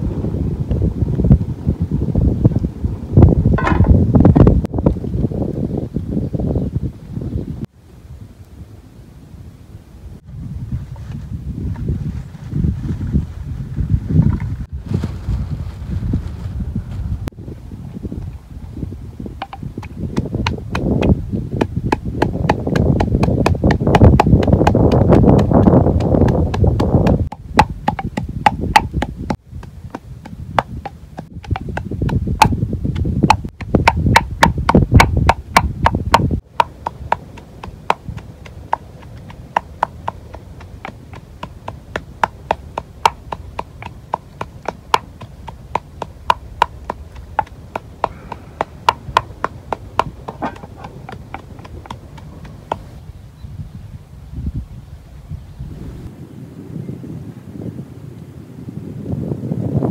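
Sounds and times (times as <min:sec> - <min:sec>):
pestle pounding in a mortar: 0:19.4 - 0:52.8.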